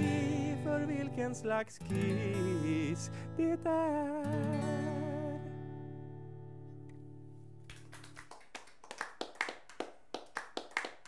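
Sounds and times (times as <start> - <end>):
acoustic guitar chord ringing: 0.0 - 7.5
audience clapping: 7.6 - 11.0.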